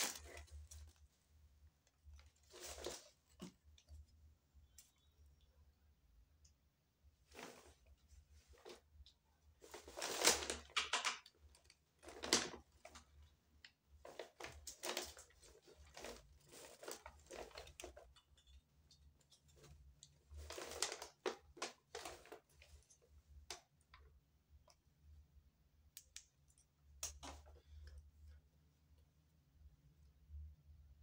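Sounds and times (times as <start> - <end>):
plastic cup and packaging rustling: 0.0 - 1.1, 2.1 - 3.9, 9.6 - 13.2, 14.0 - 18.6, 19.2 - 23.6.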